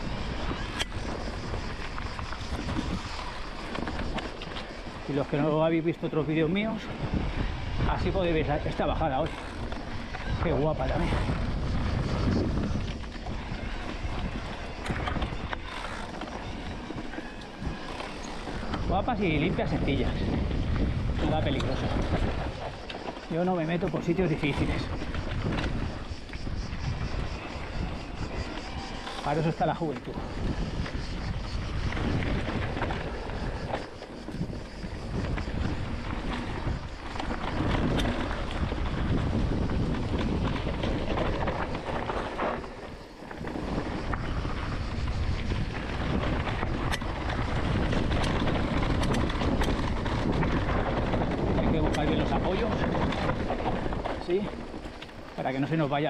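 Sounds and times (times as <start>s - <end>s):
bike rattling: 0.0s - 56.0s
bike tyres on loose ground: 0.0s - 56.0s
wind noise on microphone: 0.0s - 56.0s
bike clicks and knocks: 31.8s - 55.3s.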